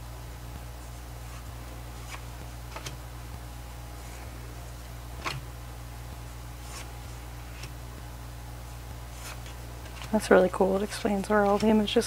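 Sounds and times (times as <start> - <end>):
steady low hum: 0.0 - 12.0
postcards flicked by hand: 2.0 - 3.0.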